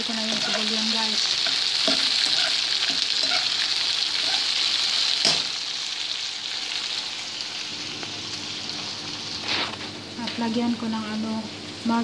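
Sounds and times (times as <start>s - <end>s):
spoon scraping pan: 0.0s - 4.6s
onions sizzling in oil: 0.0s - 12.0s.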